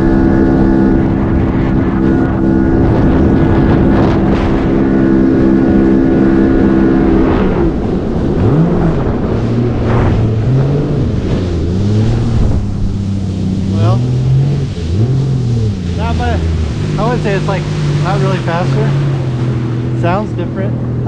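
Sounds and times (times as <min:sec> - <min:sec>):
jet ski engine running: 0:00.0 - 0:21.0
wind and water noise: 0:00.0 - 0:21.0.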